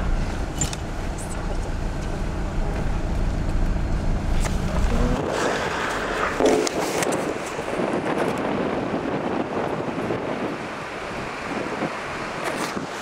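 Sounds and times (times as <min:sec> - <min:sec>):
car interior road rumble: 0:00.0 - 0:13.0
wind rushing over microphone: 0:04.2 - 0:13.0.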